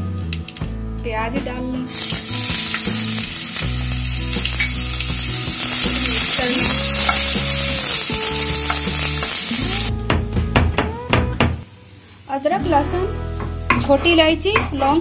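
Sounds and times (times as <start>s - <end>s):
onions sizzling in hot oil: 1.9s - 9.9s.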